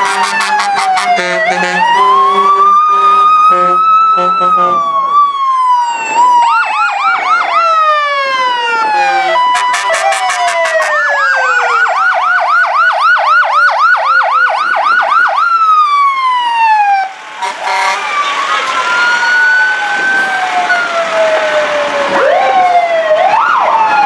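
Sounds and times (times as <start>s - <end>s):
horn blast: 0.0s - 4.9s, 8.9s - 11.8s, 17.4s - 18.3s
electronic siren yelp: 0.0s - 24.0s
fire truck sirens wailing: 0.0s - 24.0s.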